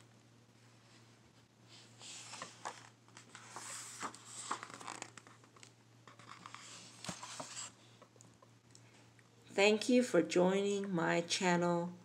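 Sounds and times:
faint steady hum: 0.0s - 12.0s
paper pages rustling: 2.0s - 7.8s.

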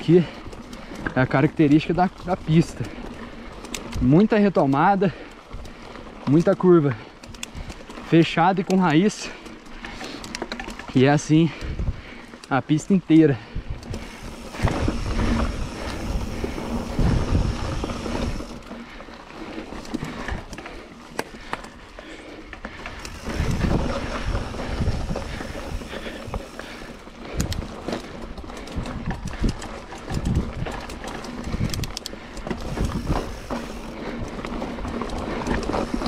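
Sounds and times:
bike tyre noise on dirt: 0.0s - 36.0s
wind buffeting microphone: 11.3s - 12.3s, 13.4s - 18.6s, 22.9s - 36.0s
bike knocks and rattles: 22.7s - 36.0s.

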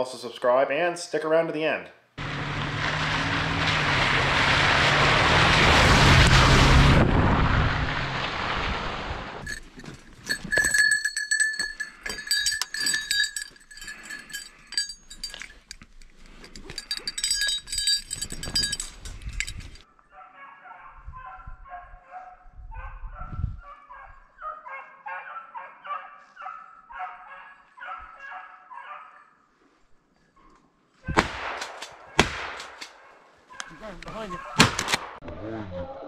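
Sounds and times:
metallic jingling and rattling: 9.4s - 19.9s
hounds baying: 23.7s - 29.4s, 33.0s - 34.7s.

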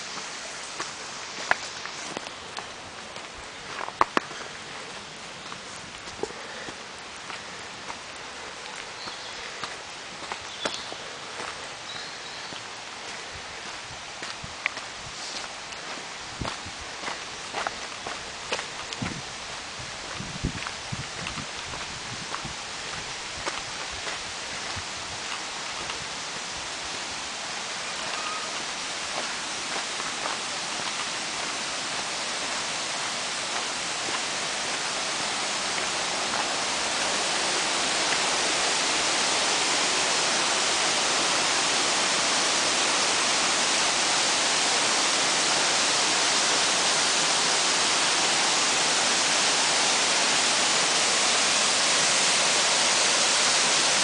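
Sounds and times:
faint footsteps on path: 0.0s - 40.3s
waterfall rushing: 0.0s - 54.0s.

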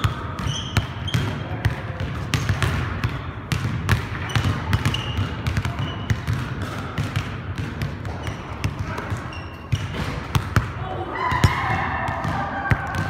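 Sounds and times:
sneakers squeaking on floor: 0.0s - 7.0s, 7.6s - 10.6s
basketball bouncing on wood floor: 0.0s - 10.8s.

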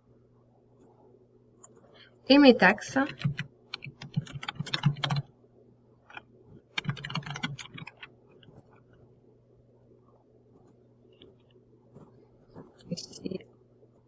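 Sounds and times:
keyboard typing: 2.9s - 5.3s, 6.1s - 9.1s.

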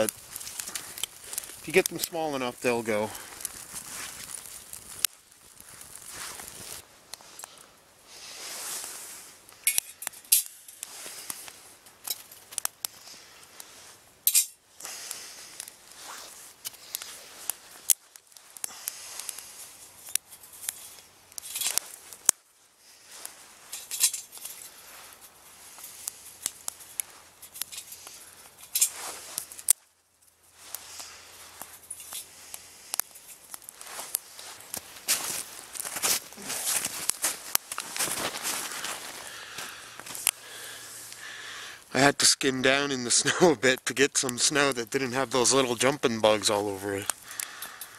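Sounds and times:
twigs snapping: 0.0s - 7.6s, 9.6s - 13.7s, 14.3s - 41.4s, 45.6s - 47.9s
rustling: 0.0s - 41.6s.

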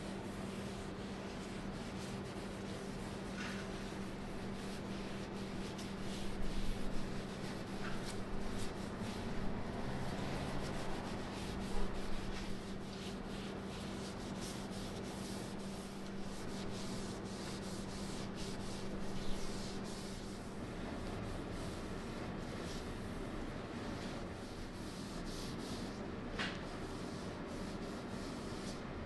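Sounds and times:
cloth rubbing on wood: 0.1s - 22.9s, 23.9s - 26.0s.

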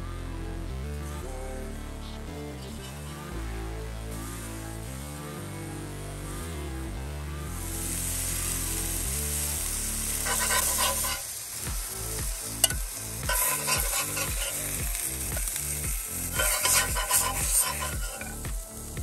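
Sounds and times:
background music with steady beat: 0.0s - 19.0s
fish sizzling in a skillet: 7.6s - 19.0s
metal spatula scraping a pan: 10.2s - 11.4s, 12.6s - 14.8s, 15.4s - 18.5s.

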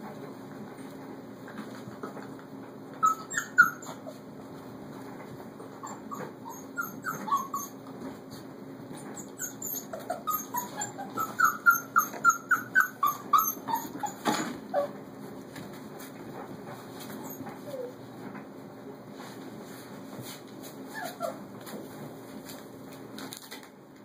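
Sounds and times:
puppies whimpering and yipping: 3.0s - 4.3s, 5.6s - 7.9s, 9.0s - 15.0s, 17.1s - 18.0s, 20.9s - 21.5s.

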